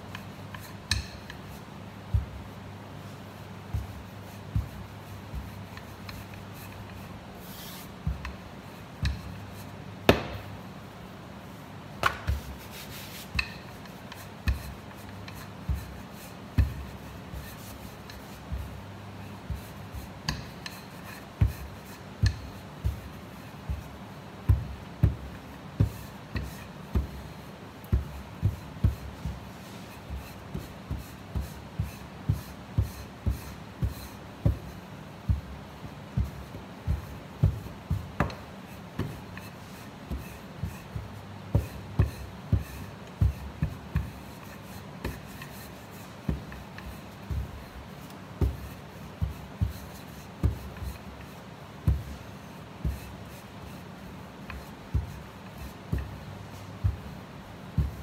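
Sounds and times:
rolling pin rubbing on dough: 0:00.0 - 0:58.0
sharp knocks on steel: 0:10.1 - 0:10.5.

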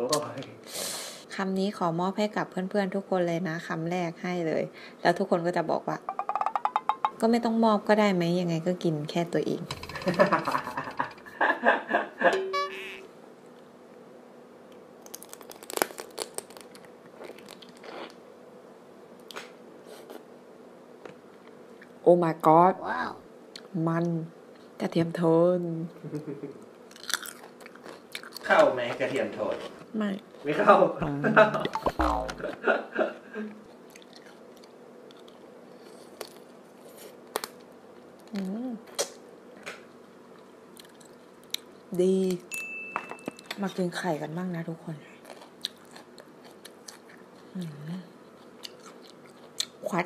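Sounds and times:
person chewing crunchy food: 0:15.0 - 0:18.2, 0:26.9 - 0:28.5, 0:33.7 - 0:37.6, 0:40.4 - 0:41.7, 0:45.2 - 0:47.7, 0:48.3 - 0:49.8.

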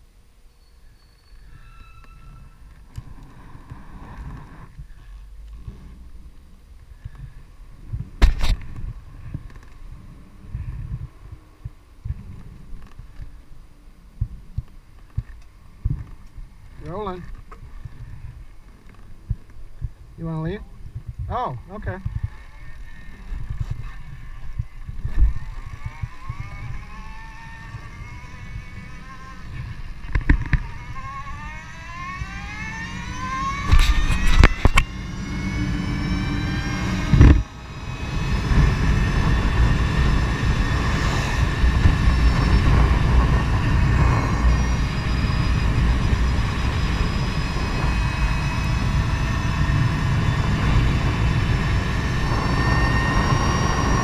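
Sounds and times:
wind rushing over microphone: 0:02.2 - 0:54.0
electric motor whining: 0:21.7 - 0:54.0.

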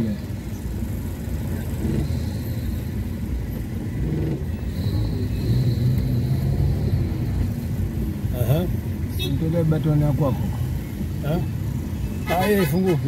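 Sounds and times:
motor vehicle running: 0:00.0 - 0:09.0.

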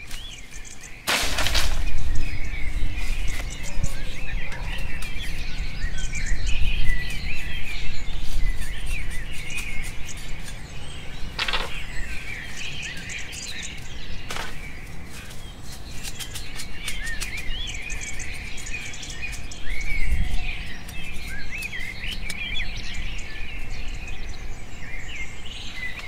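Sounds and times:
forest birds chirping: 0:00.0 - 0:26.0
bamboo poles clattering on leaves: 0:01.0 - 0:02.4, 0:11.3 - 0:12.0, 0:12.6 - 0:17.5.

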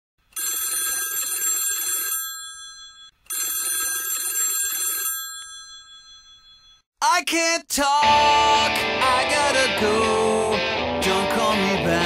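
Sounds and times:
desk telephone ringing: 0:00.4 - 0:06.9.

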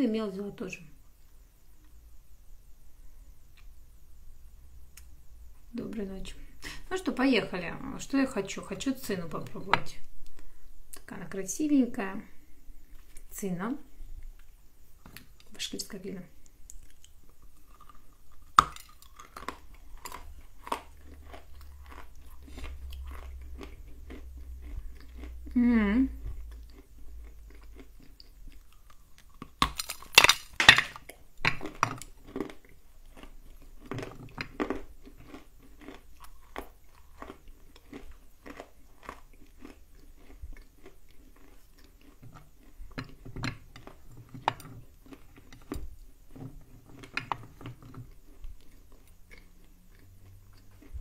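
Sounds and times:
chewing dry clay: 0:16.4 - 0:51.0
crisp crunches: 0:16.7 - 0:24.2, 0:27.6 - 0:41.9.

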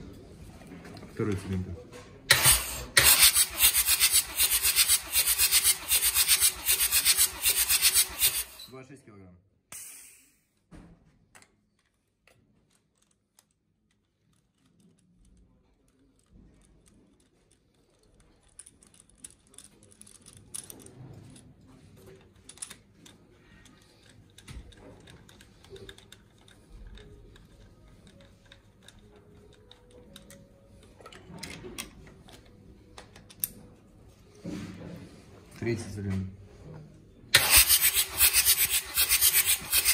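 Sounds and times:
faint clicks and taps of handling: 0:11.2 - 0:35.0.

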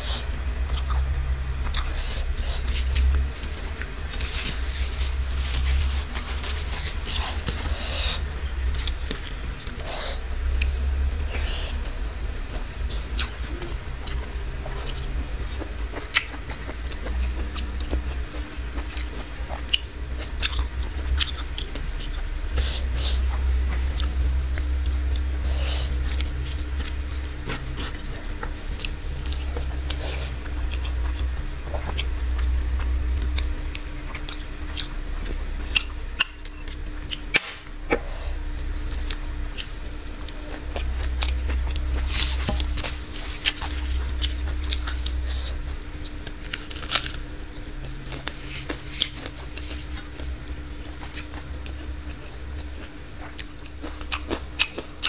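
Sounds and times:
person chewing food: 0:00.0 - 0:55.0
steady low hum: 0:00.0 - 0:55.0.

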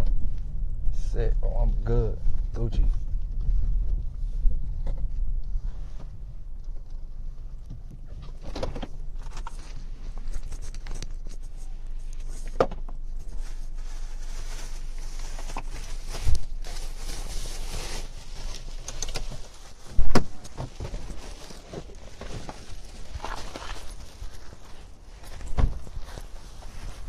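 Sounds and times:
car engine and road rumble: 0:00.0 - 0:27.0
sharp knocks and rustles: 0:18.6 - 0:27.0.

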